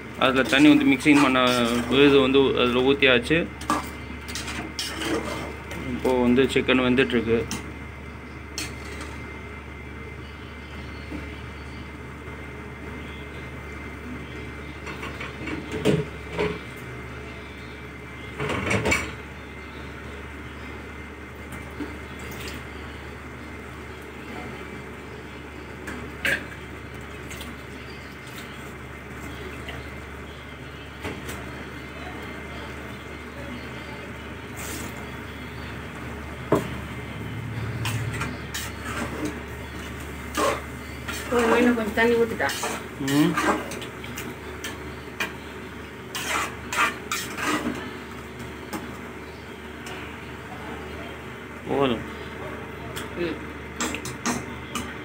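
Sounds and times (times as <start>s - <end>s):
steady low hum: 0.0s - 55.0s
ladle stirring gravy: 42.4s - 48.0s.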